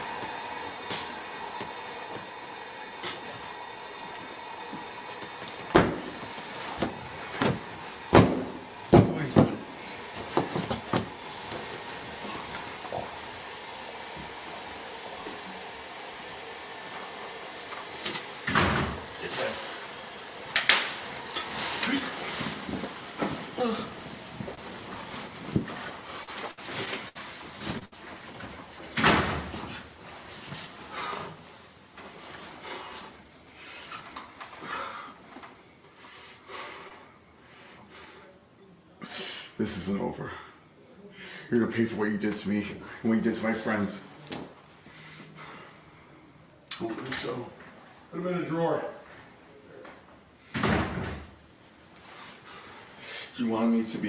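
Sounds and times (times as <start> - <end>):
rustling on an air mattress: 0.0 - 15.7, 21.0 - 36.2, 50.9 - 53.0
steady background hum: 0.0 - 54.0
heavy thump: 5.6 - 6.2, 6.8 - 11.1.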